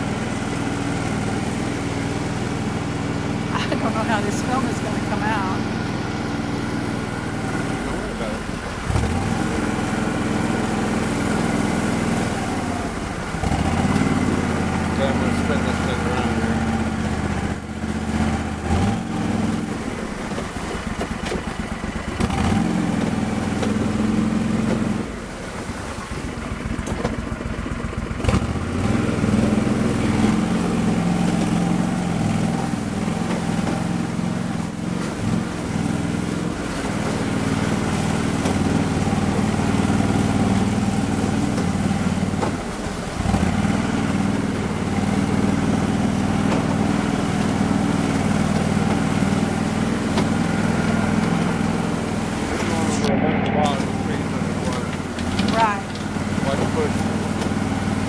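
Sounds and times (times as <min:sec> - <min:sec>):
amphibious vehicle engine running: 0:00.0 - 0:58.0.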